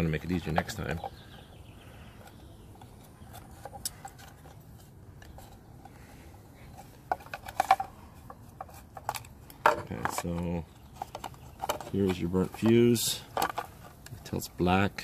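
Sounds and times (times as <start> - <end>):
plastic and metal clicks and scrapes: 2.1 - 6.0, 6.7 - 14.2.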